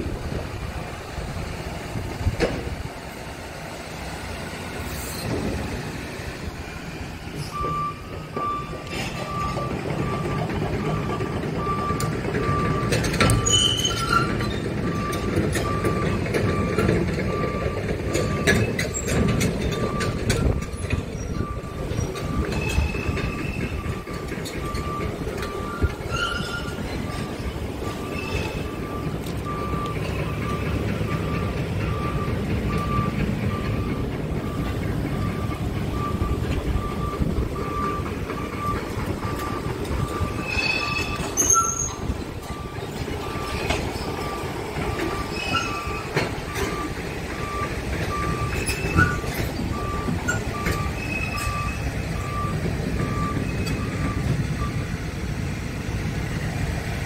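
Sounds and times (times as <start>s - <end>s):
diesel truck engine idling: 0.0s - 40.5s, 41.1s - 57.0s
electronic warning beep: 21.3s - 54.9s.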